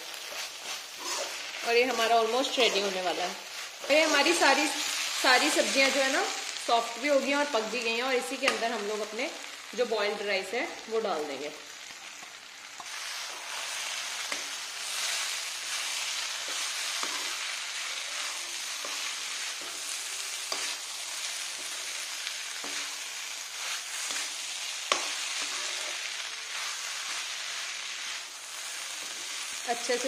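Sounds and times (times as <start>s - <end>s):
rice sizzling in a pan: 0.0s - 30.0s
spatula scraping and clanking on pan: 0.1s - 6.0s, 12.2s - 27.3s.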